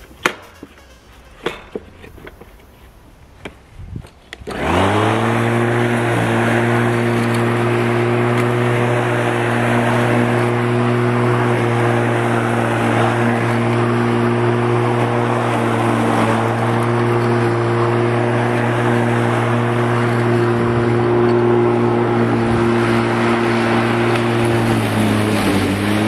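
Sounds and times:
electric lawn mower humming: 4.4 - 26.0.

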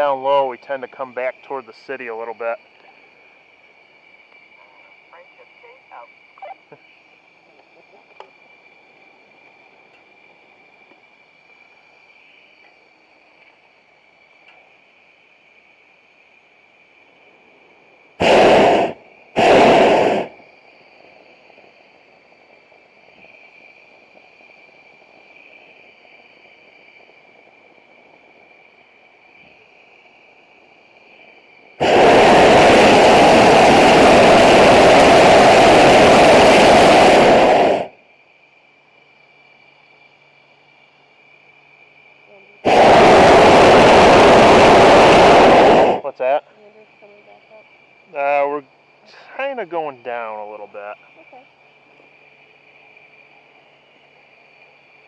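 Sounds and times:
propane burner blasts: 0.0 - 55.0.

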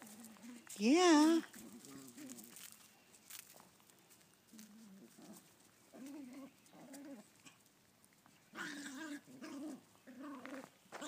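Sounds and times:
puppies growling: 1.3 - 2.6, 4.5 - 7.7, 8.5 - 11.0.

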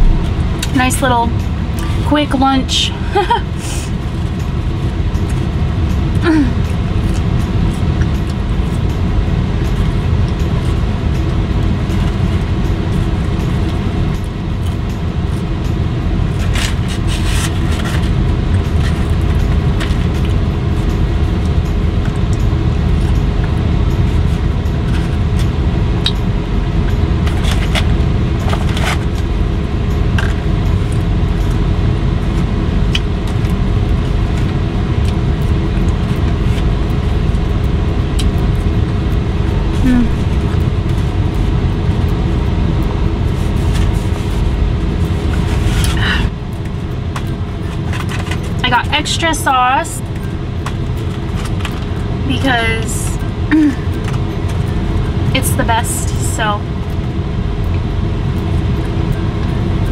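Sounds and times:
car cabin rumble: 0.0 - 5.4.

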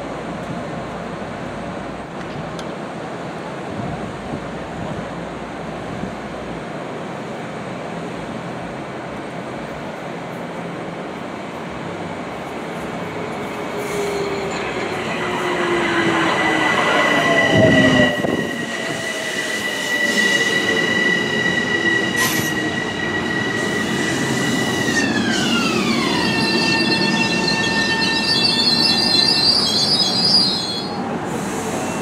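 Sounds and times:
train motor whine: 13.8 - 30.6.

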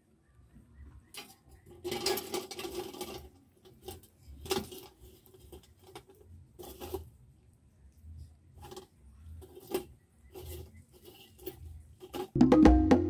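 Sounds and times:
coals rattling on metal: 1.2 - 7.1.

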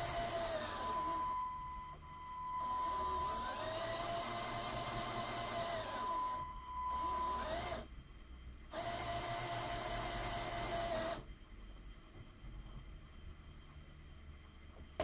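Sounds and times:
thin steady high tone: 0.0 - 4.2, 5.4 - 7.5
small electric motors whining: 0.0 - 7.9, 8.7 - 11.3.

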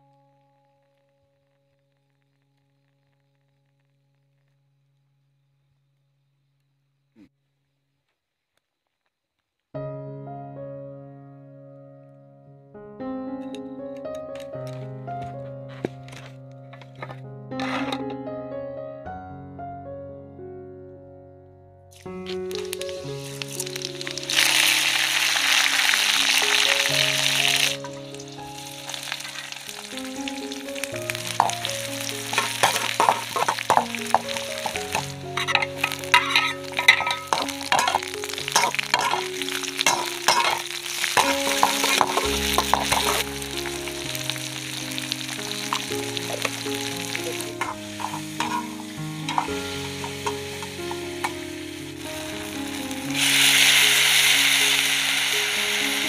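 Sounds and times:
background music: 9.8 - 56.0
spatula scraping a wok: 16.8 - 18.1, 32.2 - 43.4, 45.3 - 51.4
oil sizzling in a wok: 21.9 - 56.0.

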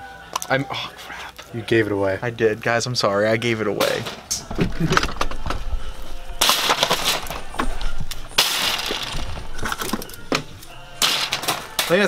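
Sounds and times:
tape rolls clattering in metal cart: 6.4 - 12.0.

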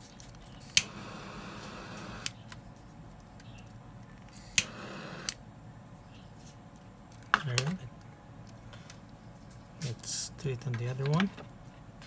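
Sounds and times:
hiss of burning gas: 0.6 - 2.3, 4.3 - 5.4
gas lighter click: 0.7 - 2.4, 4.4 - 5.4.

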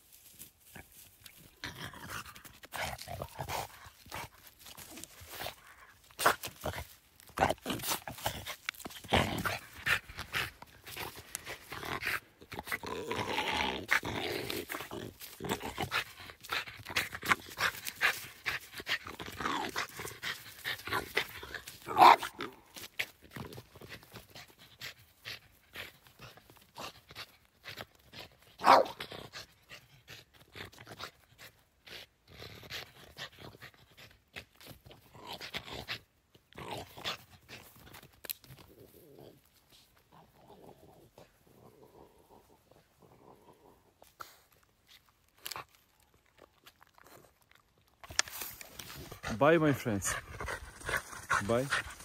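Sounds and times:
dog growling: 1.6 - 24.4, 38.6 - 44.1, 48.8 - 52.0
dog barking: 28.6 - 29.0.

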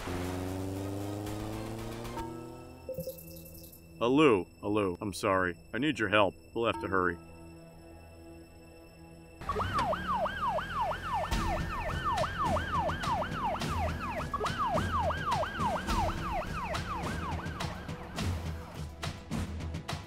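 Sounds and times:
siren yelping: 9.4 - 18.1.

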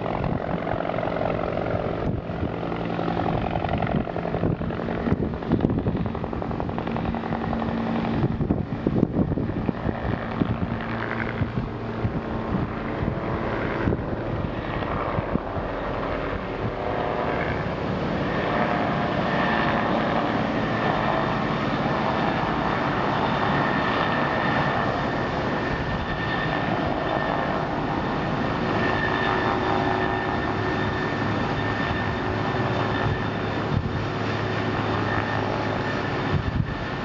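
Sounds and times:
faint steady tones: 9.6 - 37.0.

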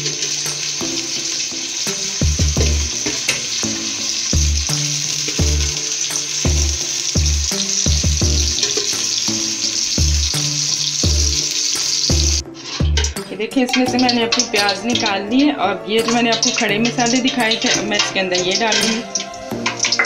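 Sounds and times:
onions sizzling in oil: 0.0 - 20.0
ladle scraping and clinking on pot: 12.4 - 15.1, 16.0 - 20.0.

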